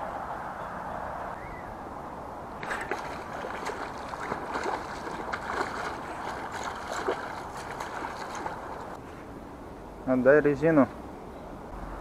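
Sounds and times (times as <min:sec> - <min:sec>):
fish splashing at water surface: 0:02.6 - 0:09.0.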